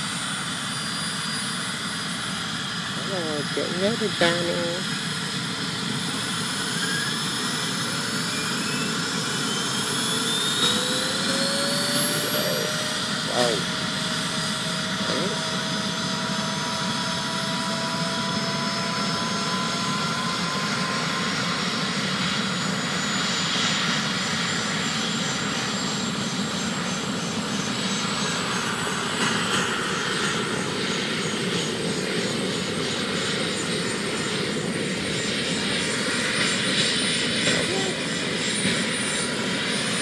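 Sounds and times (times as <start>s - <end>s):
turbine engine whine: 0.0s - 40.0s.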